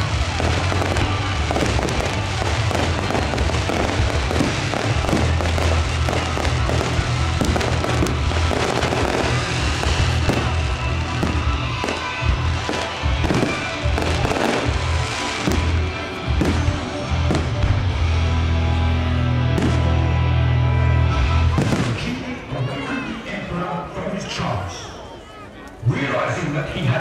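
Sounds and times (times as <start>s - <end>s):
fireworks bangs and crackles: 0.0s - 18.2s, 19.5s - 20.2s, 21.5s - 22.4s
music playing: 0.0s - 23.8s.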